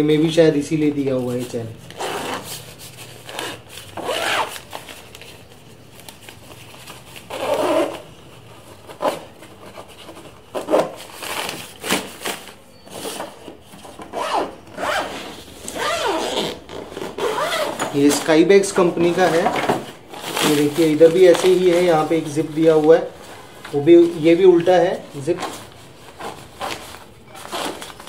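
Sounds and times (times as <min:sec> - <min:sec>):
fabric rustling: 0:01.0 - 0:28.0
zipper opening and closing: 0:01.9 - 0:04.7, 0:07.2 - 0:08.2, 0:14.0 - 0:18.2.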